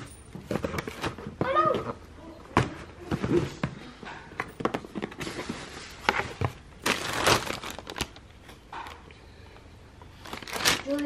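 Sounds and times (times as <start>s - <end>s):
tissue paper crinkling: 6.8s - 8.3s, 10.2s - 11.0s.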